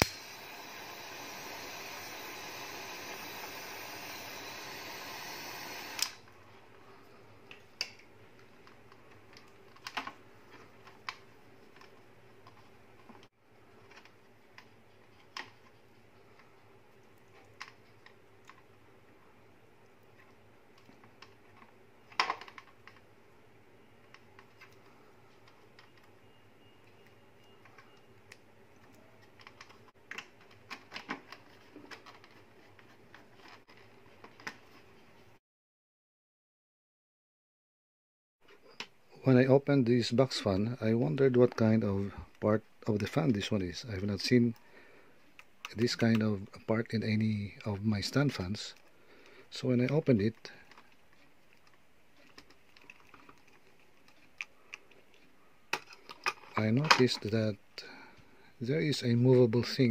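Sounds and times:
butane torch hissing: 0.0s - 6.2s.

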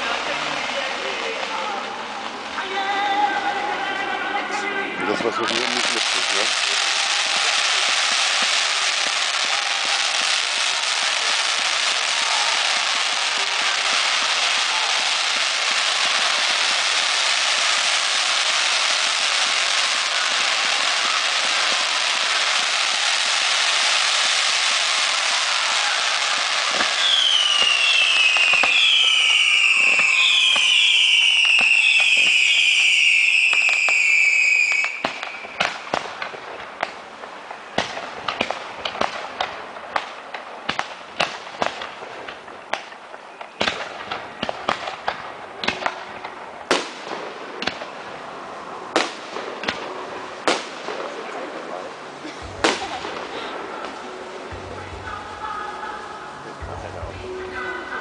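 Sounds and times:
fireworks crackling hiss: 0.0s - 58.0s
firework bangs and pops: 5.0s - 48.3s, 48.9s - 55.3s
falling firework whistles: 6.2s - 36.0s.

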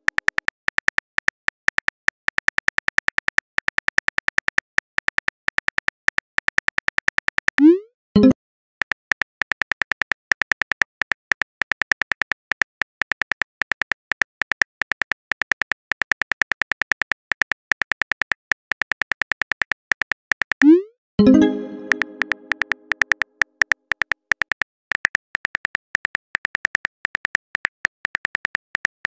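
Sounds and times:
simulated keyboard typing clicks: 0.0s - 29.0s
tone: 7.6s - 8.4s, 20.6s - 23.1s.

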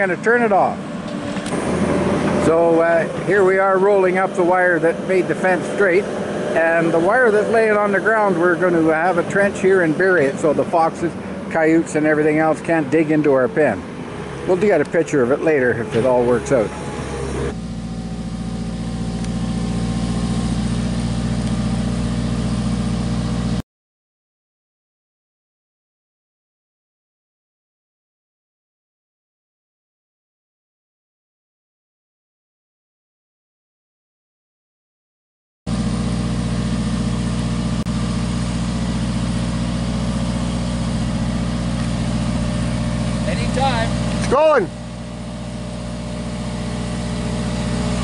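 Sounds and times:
small engine running: 0.4s - 23.6s, 35.7s - 48.0s.

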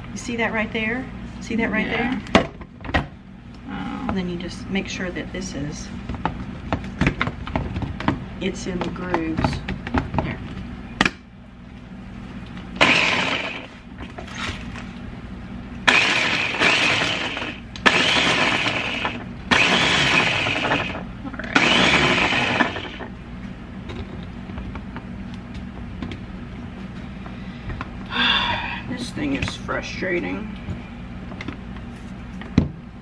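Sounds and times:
food chopper motor pulsing: 12.8s - 13.8s, 15.8s - 23.1s.

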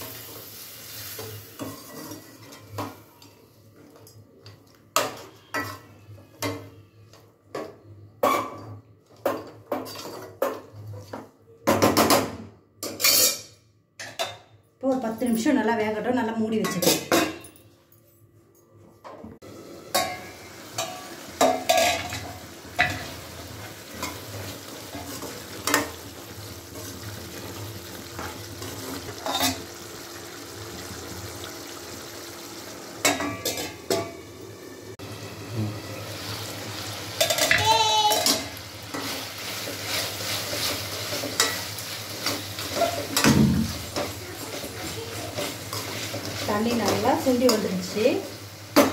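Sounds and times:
meat sizzling in a pan: 0.0s - 2.4s, 19.5s - 48.9s
metal ladle scraping a pan: 38.2s - 43.3s.

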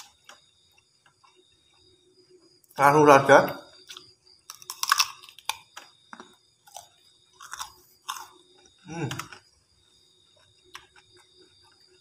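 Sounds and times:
crisp biting and chewing: 3.9s - 9.5s
person humming: 8.9s - 9.2s.

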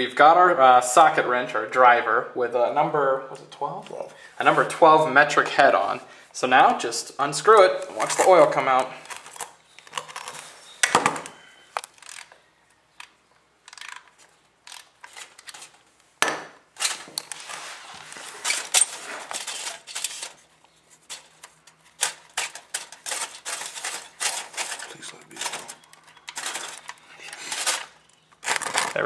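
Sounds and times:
ratchet wrench clicking: 13.6s - 15.0s.

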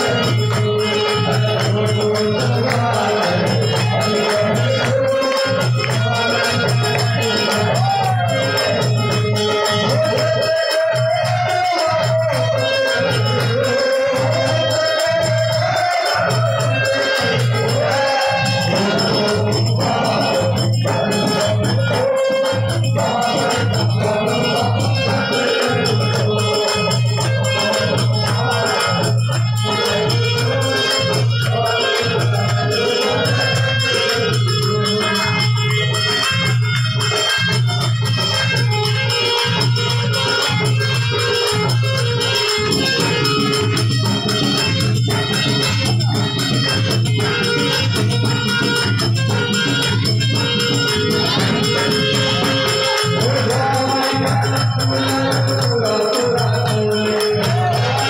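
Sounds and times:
man singing: 0.0s - 35.6s, 50.8s - 58.0s
harmonium: 0.0s - 58.0s
rattling hand percussion: 0.0s - 58.0s.

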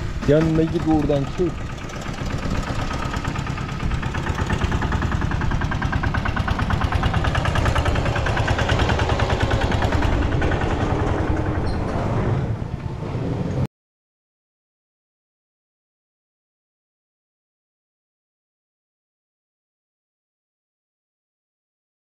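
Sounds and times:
drone propellers buzzing: 0.0s - 13.6s.

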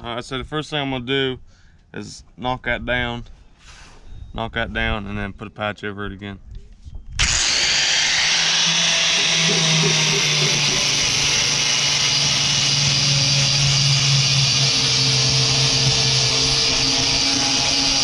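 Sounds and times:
angle grinder sanding plastic: 7.2s - 18.0s.

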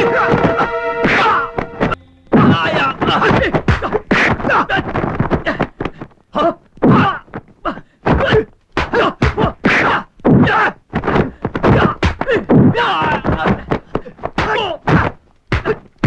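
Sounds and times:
fighters grunting and groaning: 2.4s - 5.7s, 6.4s - 15.8s
punches and kicks landing: 8.1s - 15.8s.

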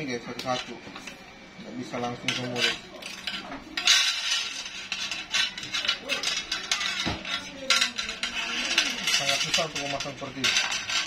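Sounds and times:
recoil spring clinking and scraping: 2.0s - 11.0s.

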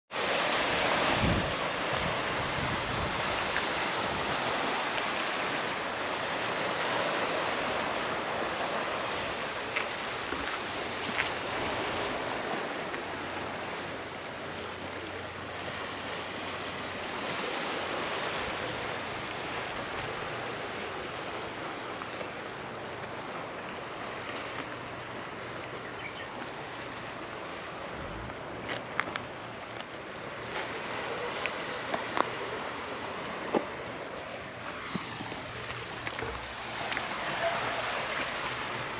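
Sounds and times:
wind noise on microphone: 0.1s - 14.1s, 27.8s - 29.5s
waves washing against rocks: 0.1s - 38.9s.

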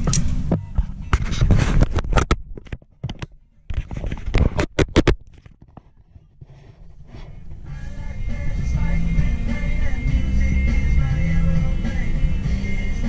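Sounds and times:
handling scrapes and clicks: 0.1s - 7.7s.

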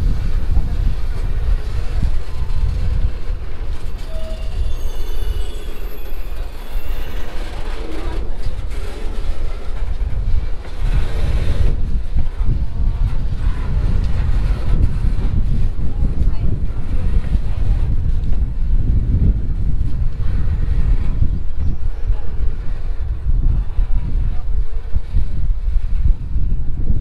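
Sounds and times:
subway train rumble: 0.0s - 27.0s
faint wheel squeal: 3.7s - 9.8s.

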